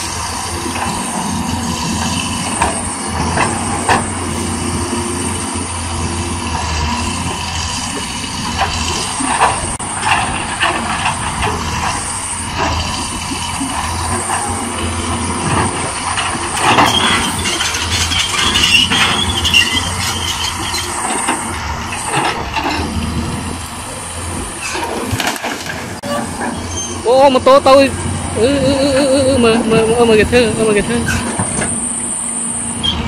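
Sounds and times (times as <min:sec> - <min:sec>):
excavator diesel engine under load: 0:00.0 - 0:33.0
high squeal: 0:16.7 - 0:21.6, 0:26.0 - 0:27.4, 0:28.4 - 0:33.0.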